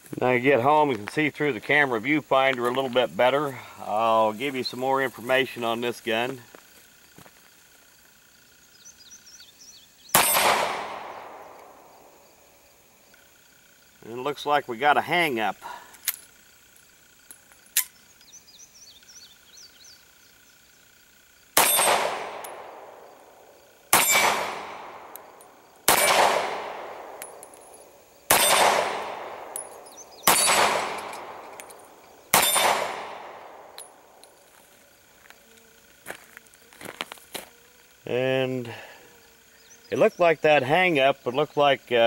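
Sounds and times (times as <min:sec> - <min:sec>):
pistol shots with ringing: 0:10.1 - 0:11.9, 0:21.6 - 0:23.1, 0:23.9 - 0:34.2.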